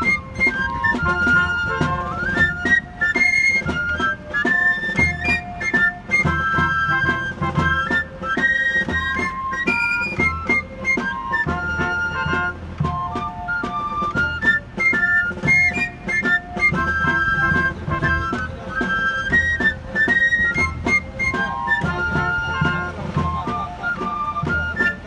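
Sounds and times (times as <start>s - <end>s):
drum strokes: 0.0s - 25.0s.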